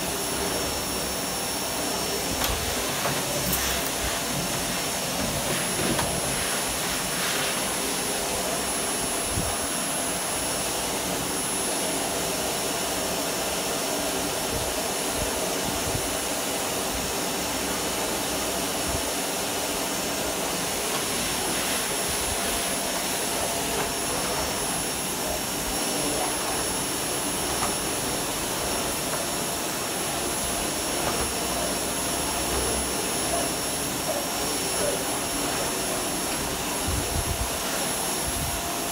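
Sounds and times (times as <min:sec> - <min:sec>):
vacuum cleaner running: 0:00.0 - 0:38.9
floor brush on a rug: 0:02.3 - 0:08.2, 0:20.4 - 0:25.0.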